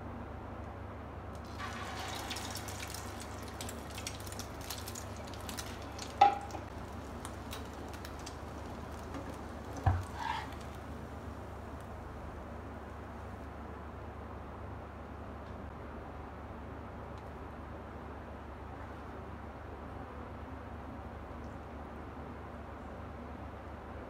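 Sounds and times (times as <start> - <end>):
potato cutlet sizzling in oil: 1.4 - 11.8
metal spatula knocking pan: 6.1 - 6.7.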